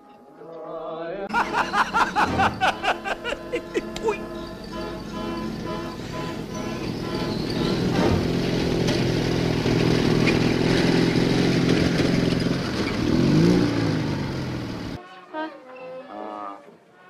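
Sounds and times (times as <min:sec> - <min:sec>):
vehicle engine running: 0:01.4 - 0:15.0.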